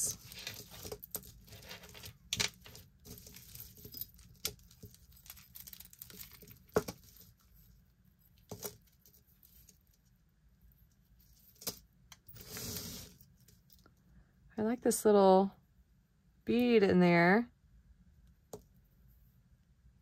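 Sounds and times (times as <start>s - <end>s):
jewelry clicking and rattling: 0.0s - 7.6s
jewelry rustling: 0.0s - 14.0s.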